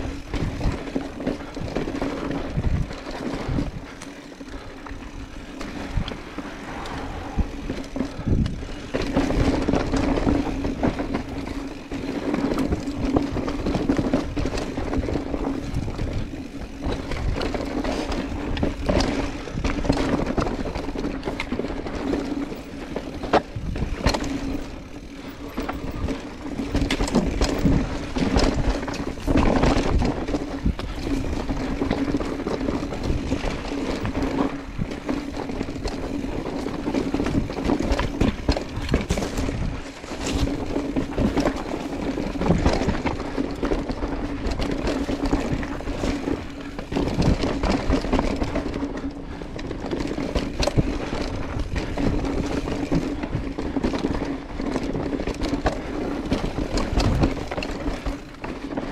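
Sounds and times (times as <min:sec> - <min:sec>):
wind on microphone: 0:00.0 - 0:21.0
bike rattling over rocks: 0:00.0 - 0:58.9
bike tyre noise: 0:00.0 - 0:58.9.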